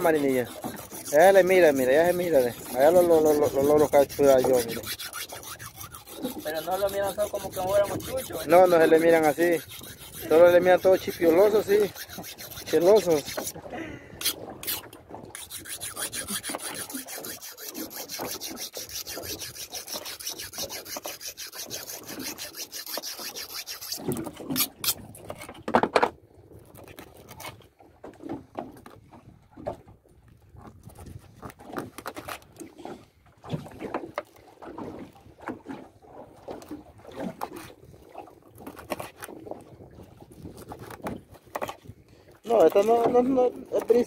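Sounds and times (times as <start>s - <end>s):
knife being sharpened: 0.2s - 13.5s, 14.2s - 25.0s.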